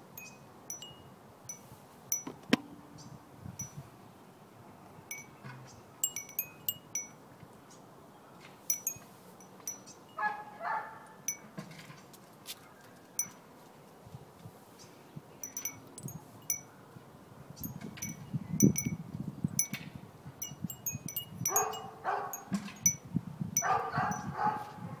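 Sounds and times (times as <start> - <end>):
wind chime tinkling: 0.2 - 3.8, 5.1 - 5.4, 6.0 - 7.2, 8.7 - 10.2, 11.3 - 11.5, 13.2 - 13.4, 15.4 - 16.7, 17.6 - 19.0, 20.4 - 24.3.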